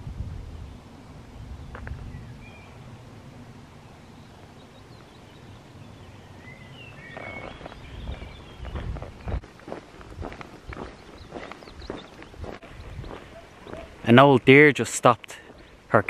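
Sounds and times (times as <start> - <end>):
wind rumble on microphone: 0.0 - 3.6, 5.3 - 14.0
faint bird chirps: 3.8 - 9.4.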